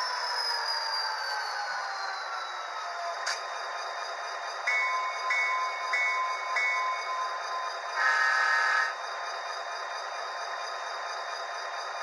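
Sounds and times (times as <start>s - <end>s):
locomotive bell ringing: 4.7s - 7.8s.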